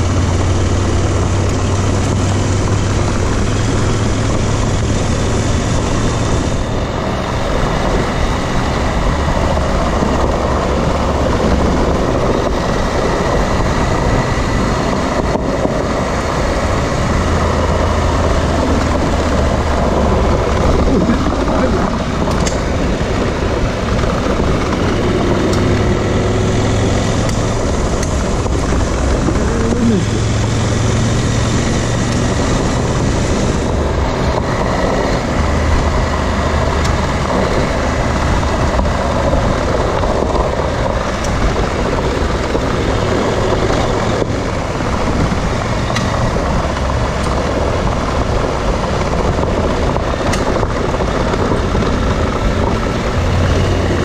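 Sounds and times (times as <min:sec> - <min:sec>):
motorcycle engine running: 0:00.0 - 0:54.0
wind and road noise: 0:00.0 - 0:54.0.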